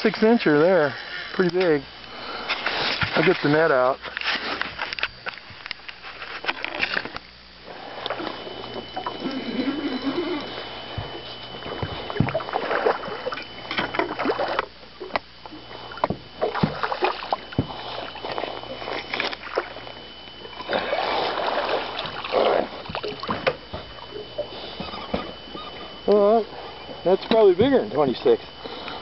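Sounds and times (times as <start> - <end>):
water splashing: 7.6 - 26.7
knocks and rattles against boat: 10.4 - 19.4, 20.5 - 28.0.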